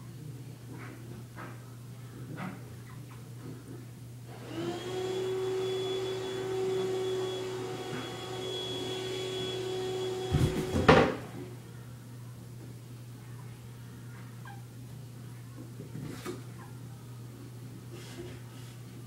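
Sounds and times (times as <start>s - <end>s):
motor-like hum: 3.4s - 11.9s.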